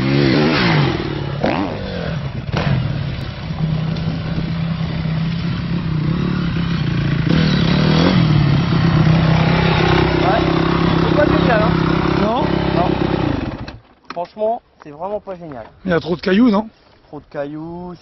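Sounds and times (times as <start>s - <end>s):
dirt bike engine revving: 0.0s - 13.8s.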